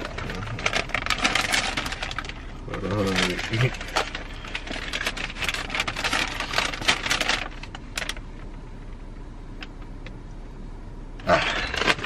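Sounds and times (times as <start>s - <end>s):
paper bags crinkling: 0.0s - 8.2s, 11.3s - 12.0s.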